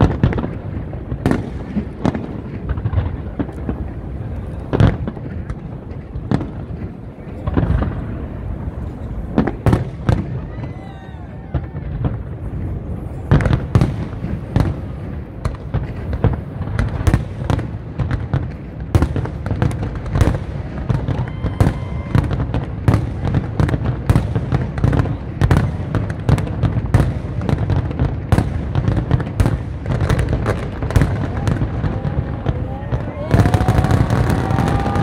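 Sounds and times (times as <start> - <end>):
fireworks bursting: 0.0 - 35.0.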